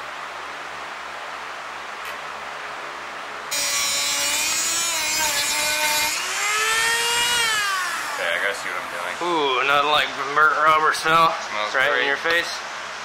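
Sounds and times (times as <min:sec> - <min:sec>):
rotary tool cutting rubber: 0:03.5 - 0:08.5.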